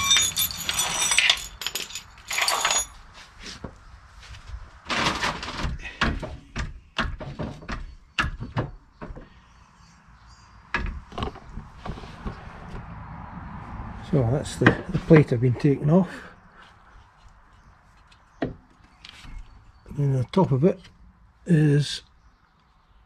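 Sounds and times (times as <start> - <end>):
metal clinks and clanks: 0.0 - 3.1.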